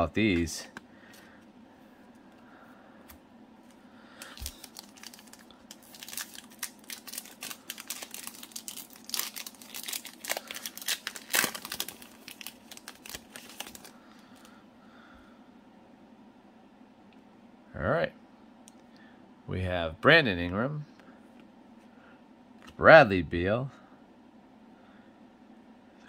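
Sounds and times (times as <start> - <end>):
foil wrapper crinkling and tearing: 4.2 - 14.5.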